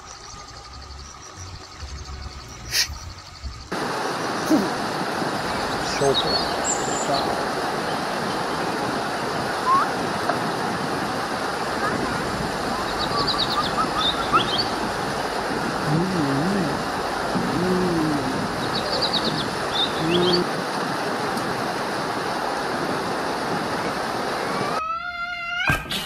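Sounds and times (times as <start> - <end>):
waterfall rushing: 3.7 - 24.8
high bird chirps: 12.6 - 15.1, 18.6 - 20.4.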